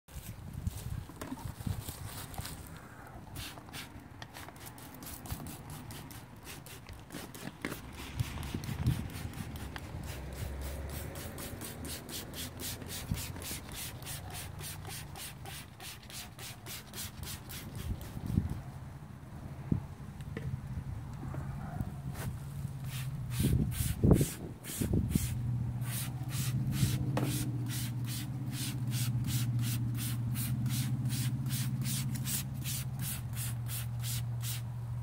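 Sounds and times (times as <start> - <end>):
brush scrubbing metal wheel: 3.4 - 18.4, 22.8 - 34.6.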